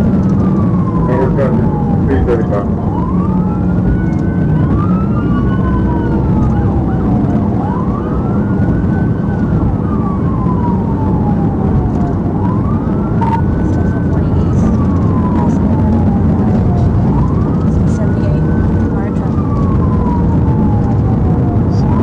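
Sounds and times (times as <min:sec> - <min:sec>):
car road and engine noise: 0:00.0 - 0:22.0
police siren wailing: 0:00.0 - 0:22.0.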